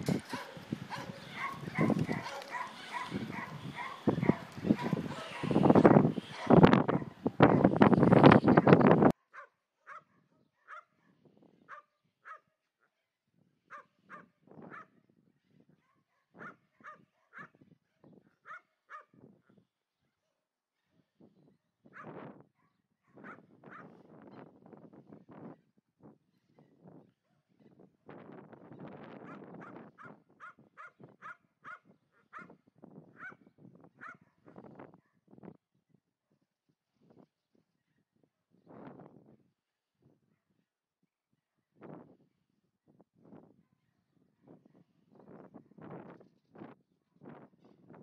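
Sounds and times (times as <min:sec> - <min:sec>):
dog barking sharply: 0:00.3 - 0:05.6.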